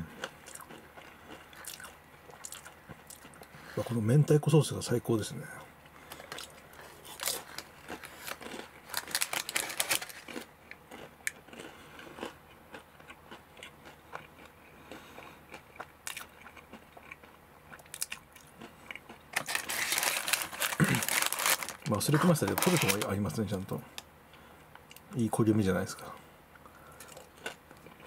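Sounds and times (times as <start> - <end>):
person chewing crunchy crust: 0.0 - 3.8, 5.8 - 23.1, 26.6 - 28.0
rustling: 6.1 - 10.4, 19.4 - 23.1.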